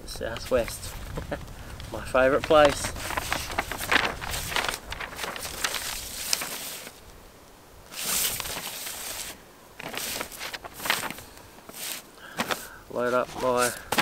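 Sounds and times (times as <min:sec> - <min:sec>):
paper map rustling: 0:00.0 - 0:07.2, 0:07.9 - 0:14.0.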